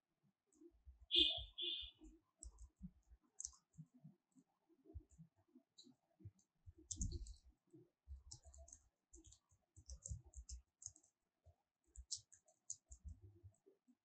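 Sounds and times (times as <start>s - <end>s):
keyboard typing: 1.1s - 4.0s, 5.8s - 7.5s, 8.1s - 11.2s, 11.8s - 13.7s.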